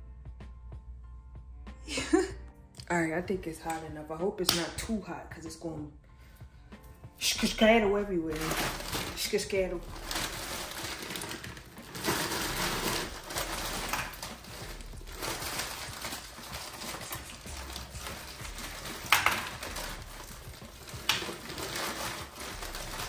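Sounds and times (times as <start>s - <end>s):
utensil clattering: 10.0s - 23.0s.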